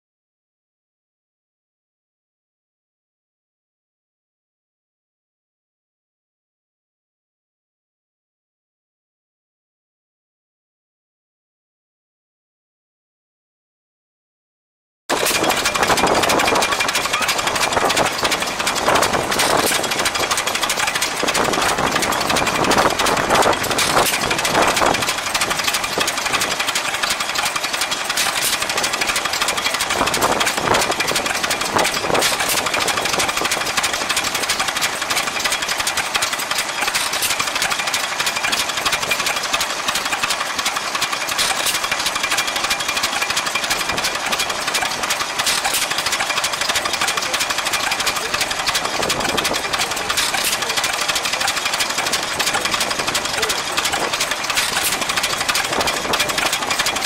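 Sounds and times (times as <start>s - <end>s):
stationary engine clattering: 15.1s - 57.0s.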